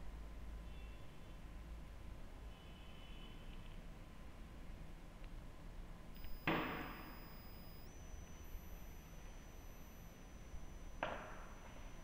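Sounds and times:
low steady hum: 5.5s - 12.0s
faint thin tone: 6.2s - 12.0s.

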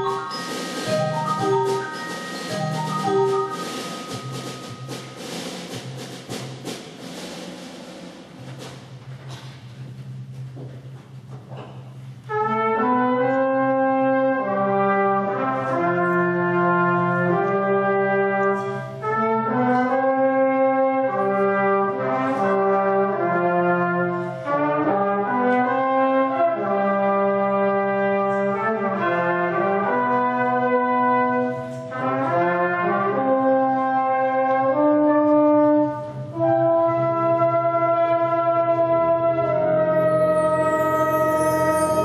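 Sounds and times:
wind band playing brass chords: 0.0s - 9.5s, 12.2s - 42.0s.

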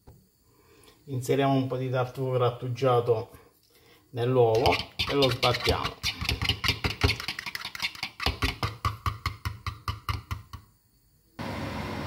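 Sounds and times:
steady hiss: 0.0s - 6.1s.

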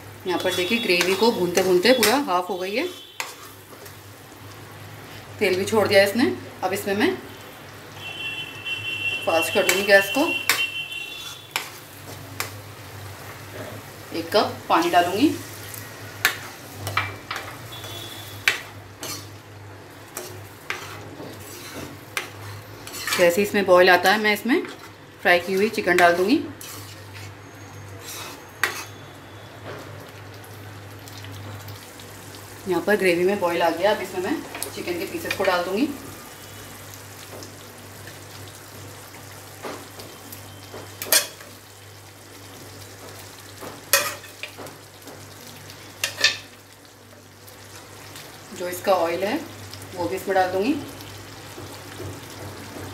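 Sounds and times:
faint sizzle of liquid: 0.0s - 52.9s
spatula scraping a pan: 3.1s - 3.7s, 10.5s - 11.8s, 17.7s - 19.4s, 20.1s - 23.4s, 24.6s - 29.1s.

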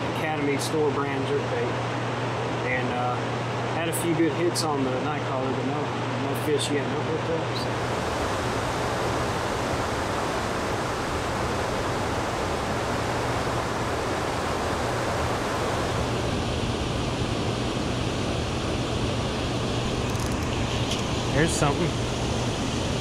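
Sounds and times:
water rushing below a dam: 7.7s - 20.0s.

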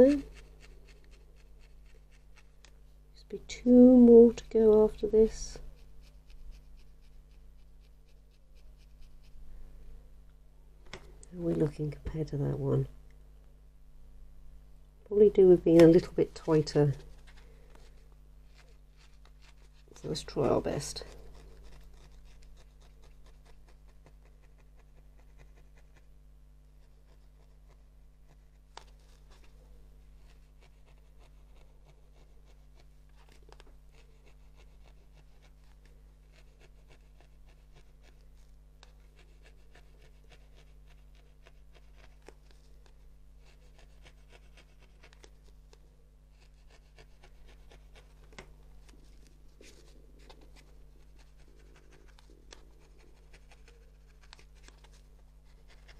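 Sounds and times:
hands scratching wool: 0.0s - 2.8s, 26.8s - 55.9s
steady low hum: 0.0s - 55.9s.

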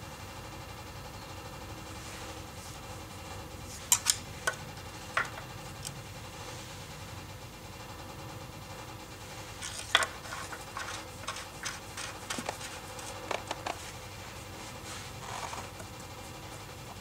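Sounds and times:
small clicks taps and scrapes: 9.6s - 13.8s
soft rustle: 12.0s - 15.8s.

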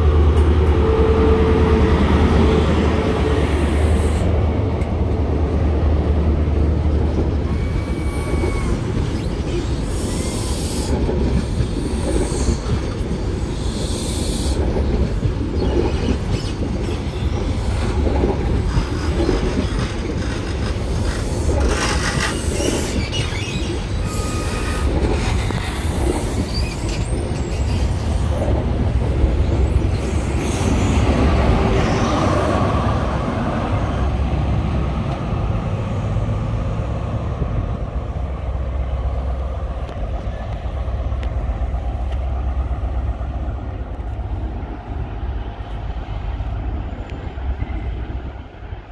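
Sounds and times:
train rolling past: 0.0s - 48.9s
wheel squeals: 7.5s - 14.4s, 18.7s - 28.5s
wheel and rail clatter: 14.5s - 32.6s.

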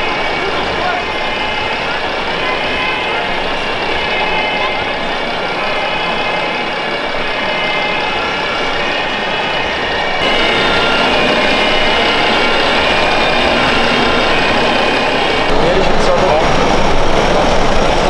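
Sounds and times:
crowd noise: 0.0s - 18.0s
diesel truck engine idling: 10.2s - 18.0s.

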